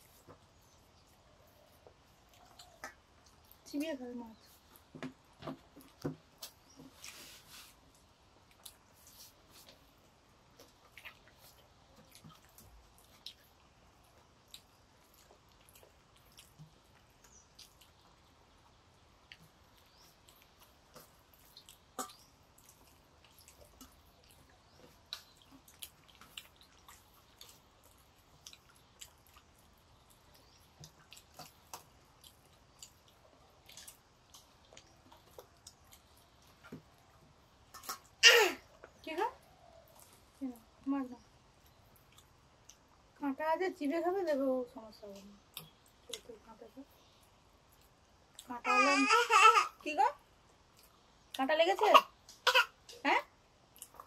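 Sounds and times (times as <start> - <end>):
chewing: 0.0 - 40.7, 41.5 - 43.1, 45.2 - 48.5, 50.4 - 51.4, 53.6 - 54.0
fingers mixing food on steel plates: 19.2 - 38.2.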